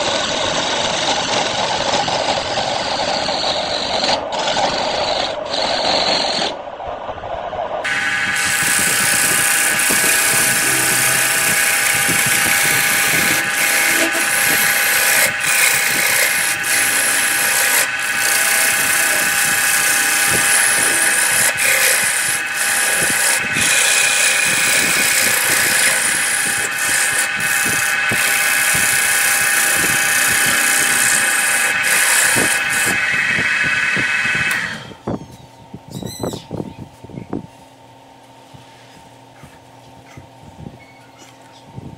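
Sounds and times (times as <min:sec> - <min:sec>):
gouge cutting hiss on wood: 0:07.9 - 0:34.6
lathe motor whine: 0:07.9 - 0:35.0.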